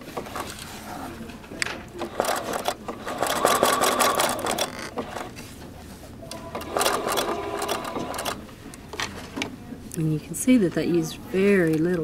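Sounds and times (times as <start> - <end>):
sewing machine stitching: 2.0 - 5.3, 6.4 - 8.4.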